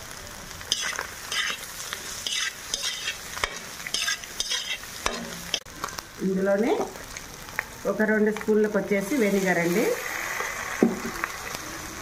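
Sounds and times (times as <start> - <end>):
light frying sizzle: 0.0 - 12.0
metal spatula scraping vegetables: 0.7 - 5.7.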